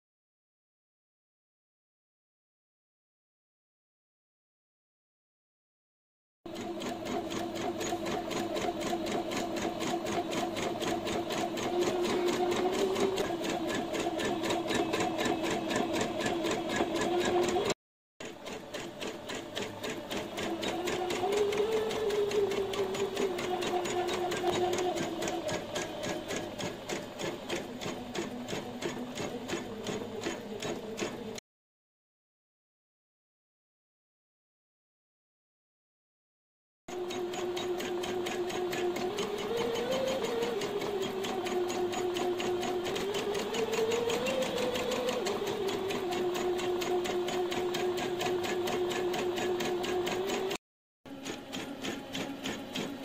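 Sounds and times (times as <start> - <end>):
embroidery machine stitching: 6.5 - 31.4, 36.9 - 53.0.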